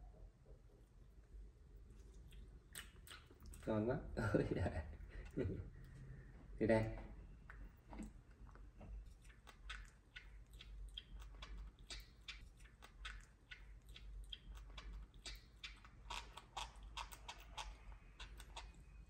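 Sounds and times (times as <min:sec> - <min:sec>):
monkey chewing wet smacks: 0:02.0 - 0:03.7, 0:07.4 - 0:19.0.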